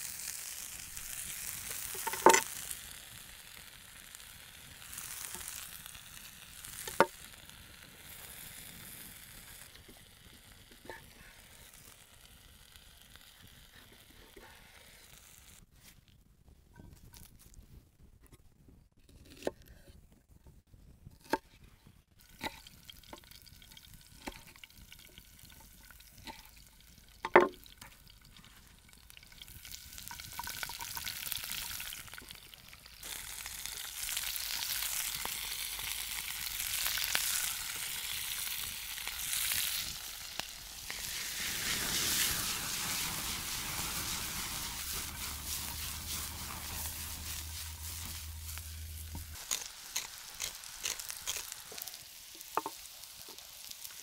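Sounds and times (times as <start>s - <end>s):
vegetables sizzling in a frying pan: 0.0s - 15.6s, 28.5s - 54.0s.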